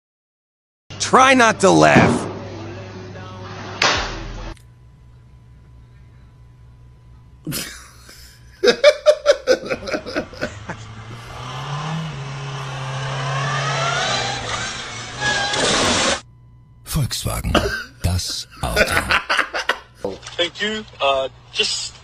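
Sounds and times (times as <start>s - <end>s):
man laughing hard: 7.5s - 11.2s, 17.5s - 19.8s
car engine running: 9.6s - 16.2s.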